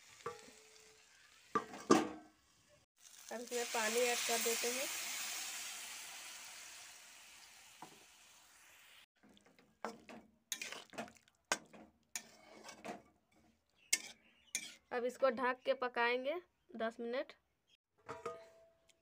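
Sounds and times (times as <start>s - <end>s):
oil sizzling in a pan: 0.0s - 11.6s
spatula scraping a pan: 9.2s - 14.9s.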